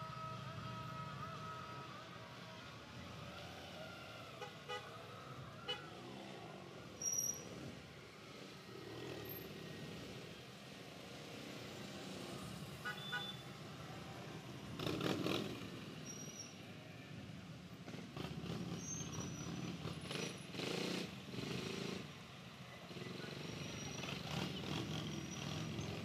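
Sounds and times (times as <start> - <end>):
horn beeps: 12.9 - 13.4.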